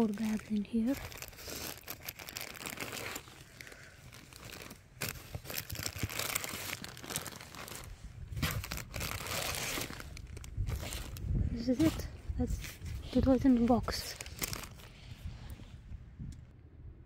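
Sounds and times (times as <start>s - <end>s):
plastic bags crinkling: 0.0s - 15.0s.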